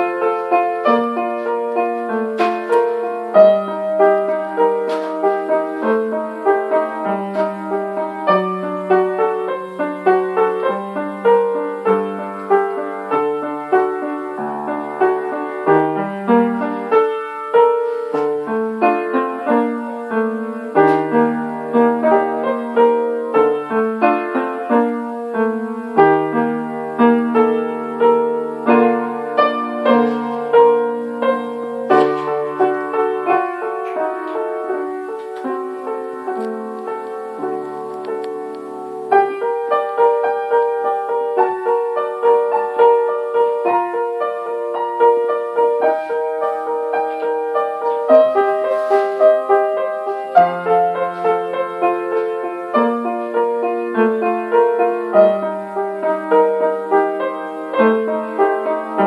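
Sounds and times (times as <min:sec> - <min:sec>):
solo piano: 0:00.0 - 0:59.0.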